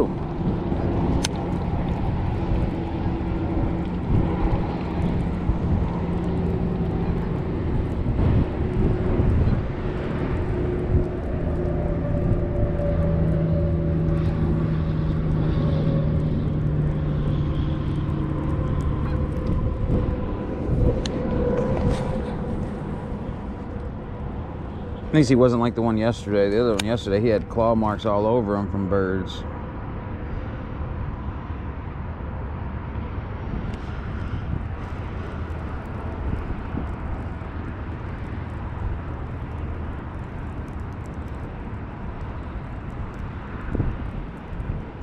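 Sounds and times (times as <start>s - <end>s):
low rumble: 0.0s - 31.2s
engine humming: 0.0s - 31.3s.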